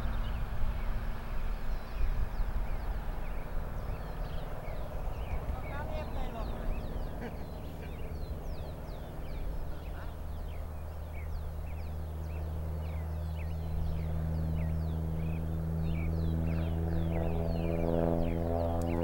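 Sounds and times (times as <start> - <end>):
propeller airplane droning: 0.0 - 19.0
small birds chirping: 0.0 - 19.0.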